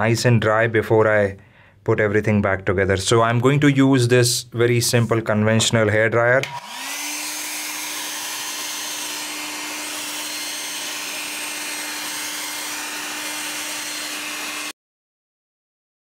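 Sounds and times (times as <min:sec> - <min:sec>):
hairdryer running: 0:06.4 - 0:14.8.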